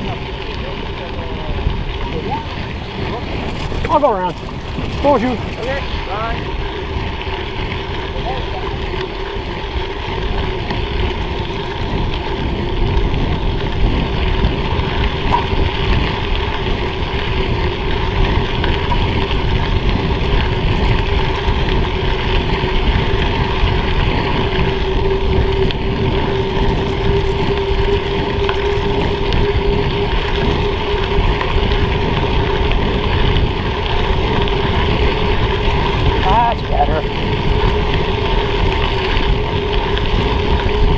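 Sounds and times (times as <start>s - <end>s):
bicycle tyres rolling on gravel: 0.0s - 40.9s
wind on microphone: 0.0s - 40.9s.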